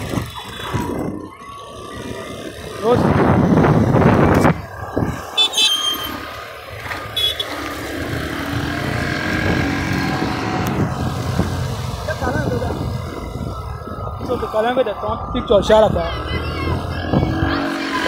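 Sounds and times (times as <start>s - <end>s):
road traffic: 0.0s - 18.0s.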